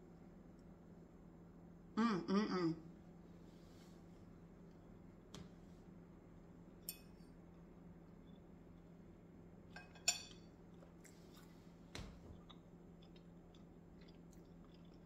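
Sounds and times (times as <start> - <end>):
cutlery clinking on plate: 9.8 - 10.5.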